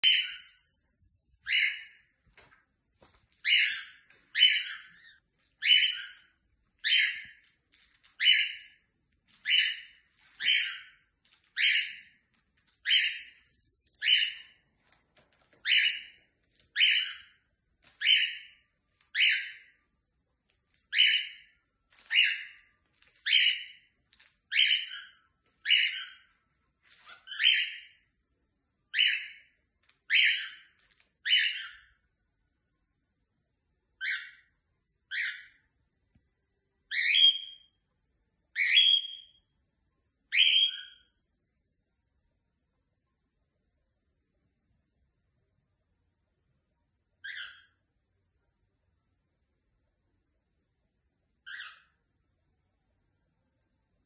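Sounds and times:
cockatiel calling: 0:00.0 - 0:00.6, 0:01.4 - 0:14.6, 0:15.4 - 0:19.8, 0:20.9 - 0:26.4, 0:27.0 - 0:28.0, 0:28.9 - 0:32.0, 0:34.0 - 0:34.5, 0:35.1 - 0:35.6, 0:36.9 - 0:37.7, 0:38.6 - 0:39.4, 0:40.3 - 0:41.1, 0:47.2 - 0:47.8, 0:51.4 - 0:52.0.

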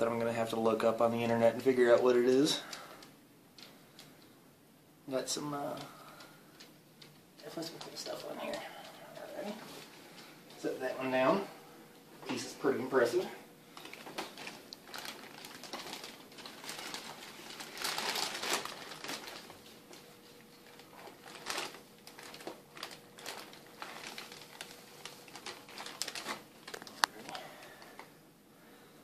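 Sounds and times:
plastic bag crinkling: 0:05.6 - 0:11.5, 0:12.3 - 0:28.2.

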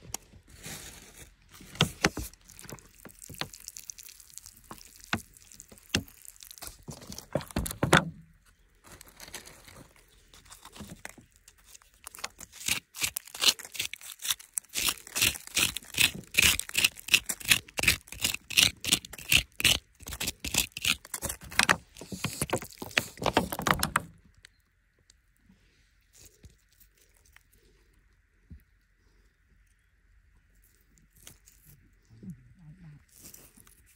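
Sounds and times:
grit crunching and falling: 0:00.1 - 0:08.0, 0:08.8 - 0:24.1
hand tool scraping soil: 0:08.9 - 0:23.8.

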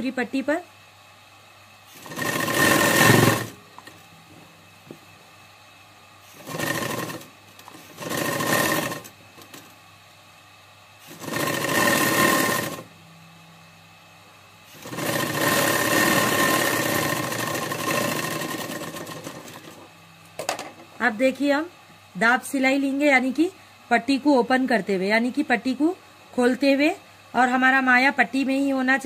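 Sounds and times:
low steady hum: 0:00.0 - 0:17.9
sewing machine stitching: 0:01.9 - 0:03.9, 0:06.3 - 0:09.7, 0:11.0 - 0:12.9, 0:14.7 - 0:19.8.

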